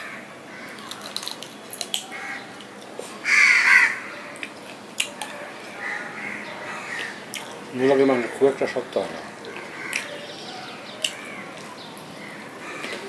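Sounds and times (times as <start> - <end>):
crow cawing: 0.0 - 1.1, 2.1 - 2.5, 3.2 - 4.3, 5.8 - 7.2, 7.8 - 8.8, 9.6 - 11.6, 12.2 - 13.0
person chewing food: 6.9 - 7.6.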